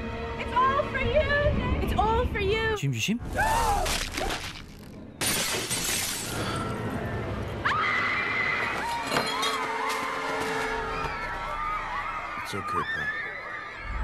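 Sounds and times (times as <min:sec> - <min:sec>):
window glass shattering: 0:03.8 - 0:06.8.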